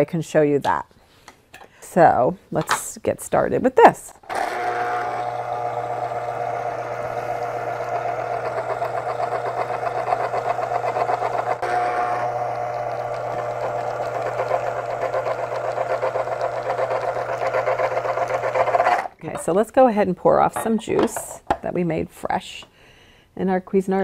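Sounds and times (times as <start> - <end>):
electric juicer motor humming: 4.3 - 19.2.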